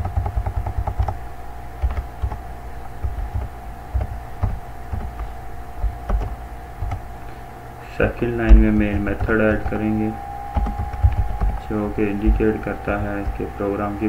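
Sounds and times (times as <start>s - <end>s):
keyboard typing: 0.0s - 1.2s, 1.8s - 2.4s, 3.0s - 7.1s, 8.4s - 13.5s
electrical hum: 0.0s - 14.0s.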